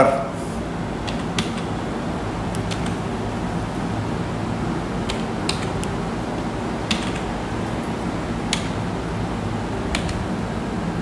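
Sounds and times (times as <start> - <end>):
low background hum: 0.0 - 11.0
button clicks: 2.5 - 3.0, 5.1 - 6.0, 6.9 - 7.3, 9.9 - 10.2.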